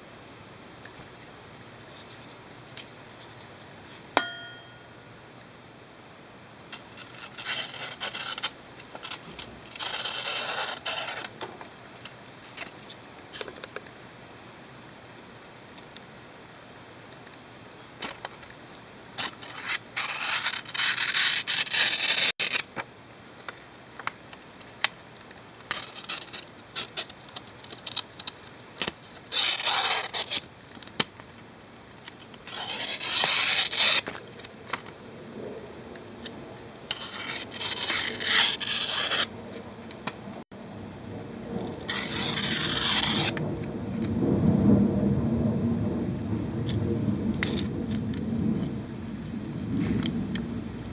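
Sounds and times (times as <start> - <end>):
blade scraping through paper: 6.8 - 11.4, 19.2 - 22.7, 25.7 - 30.5, 32.4 - 34.5, 36.9 - 39.6, 41.8 - 43.4
paper crackles: 25.6 - 31.2.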